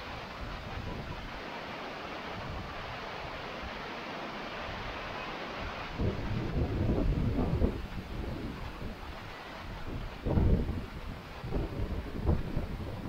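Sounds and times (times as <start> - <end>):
wind buffeting microphone: 0.0 - 1.4, 5.6 - 13.0
waterfall and stream rushing: 0.0 - 13.0.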